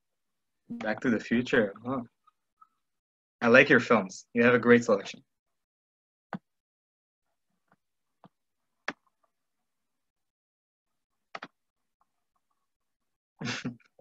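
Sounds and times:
computer mouse clicks: 7.7 - 9.3, 11.3 - 11.6.

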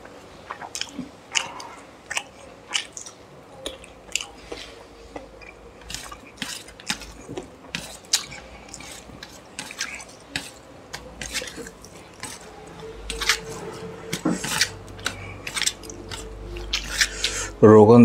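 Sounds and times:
wet smacking and chewing: 0.0 - 17.6.

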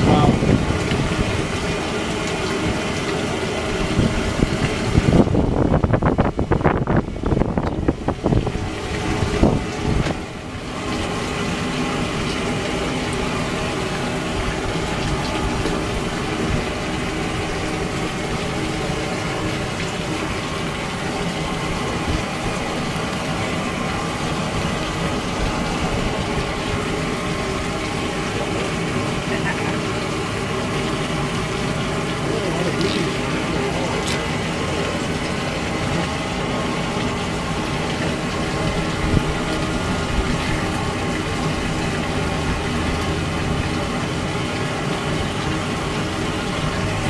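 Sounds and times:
wind noise on microphone: 0.0 - 1.5, 3.8 - 10.3, 38.6 - 41.0
mechanical hum: 0.0 - 47.0
water running: 0.0 - 47.0.

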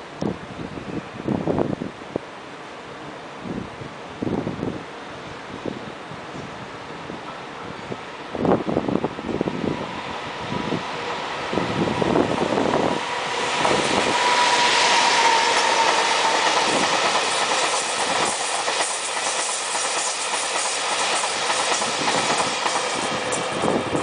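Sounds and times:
electric locomotive passing: 0.0 - 24.0
wheels clacking over rail joints: 15.1 - 24.0.

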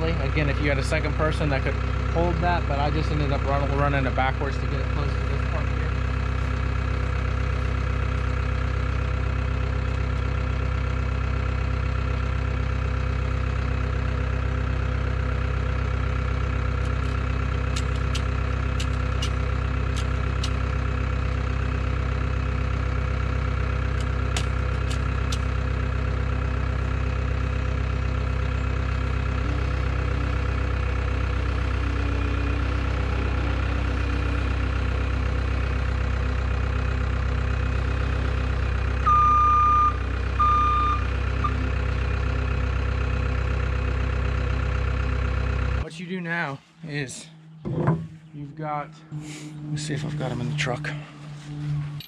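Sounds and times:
diesel engine idling: 0.0 - 52.0
sharp clicks: 17.7 - 20.6.

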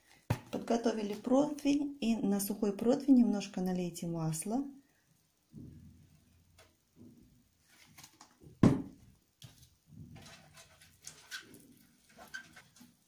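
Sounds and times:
loud thump: 8.6 - 9.0.

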